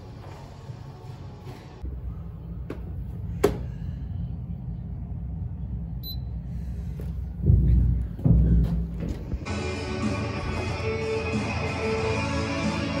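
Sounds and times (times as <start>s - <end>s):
low rumble: 1.8s - 10.8s.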